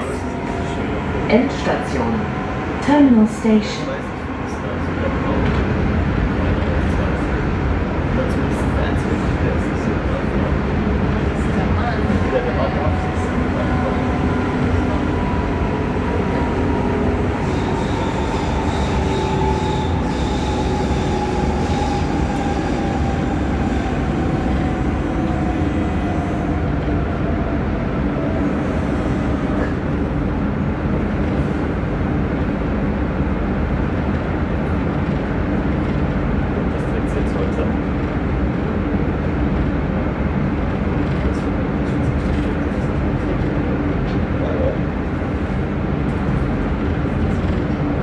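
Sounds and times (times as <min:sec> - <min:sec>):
light-rail car rumbling with whine: 0:00.0 - 0:48.0
high wheel squeal: 0:14.2 - 0:25.9.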